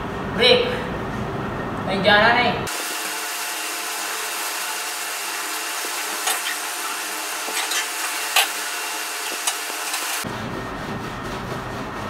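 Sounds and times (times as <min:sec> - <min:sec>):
brush scrubbing wet blanket: 0:04.1 - 0:12.0.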